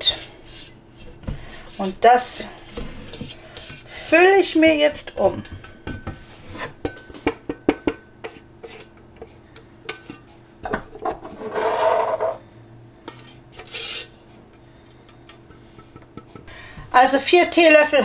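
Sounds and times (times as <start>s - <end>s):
spatula knocking on metal bowl: 6.8s - 8.4s.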